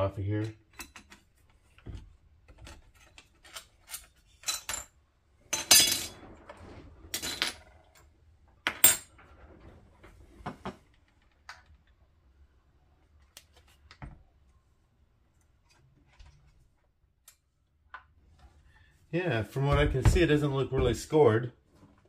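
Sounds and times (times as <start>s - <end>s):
metal tools clinking and clanking: 2.9s - 5.0s.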